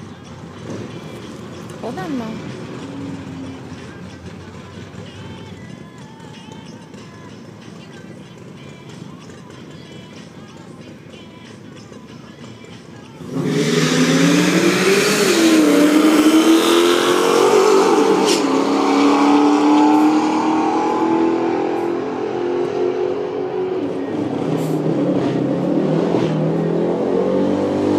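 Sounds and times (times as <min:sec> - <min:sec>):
cars racing at full throttle: 0:00.0 - 0:05.4, 0:13.2 - 0:27.9.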